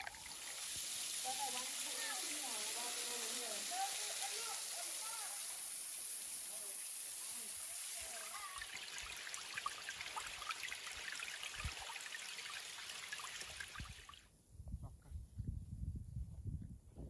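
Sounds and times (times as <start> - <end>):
waterfall splashing over rock: 0.0 - 14.1
wind buffeting microphone: 14.5 - 17.0.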